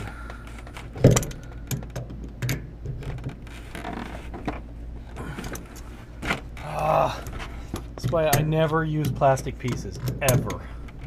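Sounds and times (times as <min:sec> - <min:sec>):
steady low hum: 0:00.0 - 0:11.0
wrench clicking and knocking: 0:01.0 - 0:03.4, 0:07.7 - 0:11.0
wrench scraping: 0:07.3 - 0:11.0.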